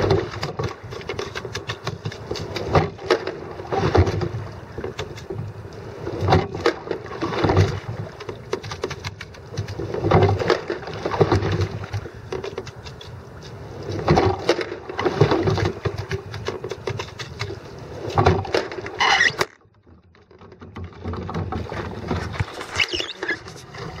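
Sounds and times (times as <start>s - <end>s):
water splashing from rowing: 0.0s - 24.0s
fumbling at camera: 22.1s - 24.0s.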